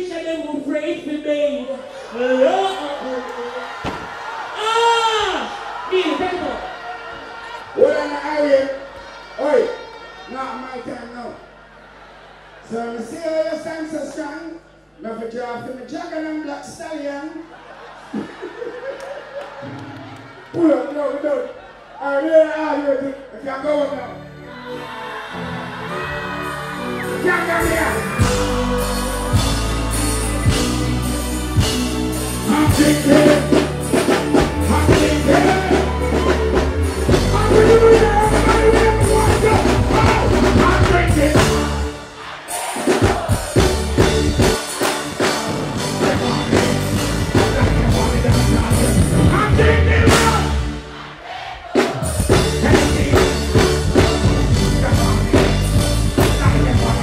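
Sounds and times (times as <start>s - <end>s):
live reggae band music: 1.9s - 7.8s, 23.4s - 57.0s
vocalist singing through pa: 26.3s - 31.6s, 32.2s - 51.0s, 51.7s - 57.0s.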